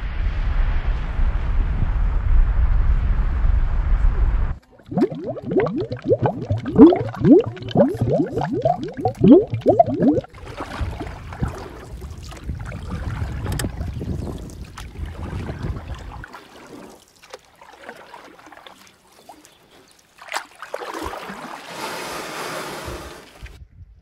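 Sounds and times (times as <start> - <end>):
wind buffeting microphone: 5.0 - 16.2.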